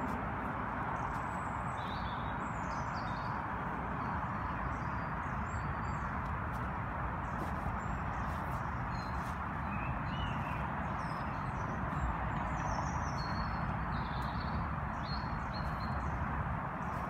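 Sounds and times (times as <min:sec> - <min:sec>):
steady rushing background noise: 0:00.0 - 0:17.0.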